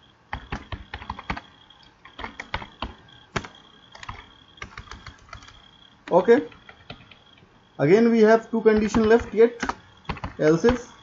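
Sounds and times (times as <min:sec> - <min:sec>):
keyboard key clicks: 0:08.8 - 0:10.9.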